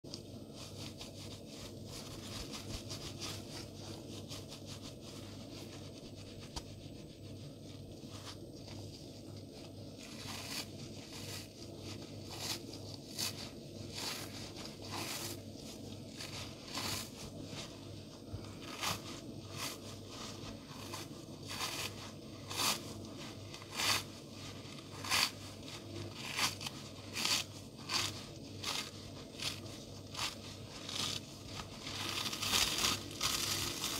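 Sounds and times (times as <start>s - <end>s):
sponge ripping crunches: 20.7s - 33.9s.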